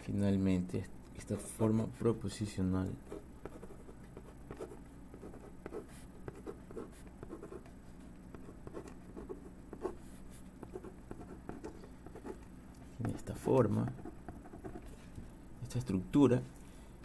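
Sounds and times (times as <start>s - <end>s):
low steady hum: 0.0s - 17.0s
ballpoint pen scratching on paper: 3.1s - 7.7s, 8.3s - 12.4s, 13.0s - 14.9s.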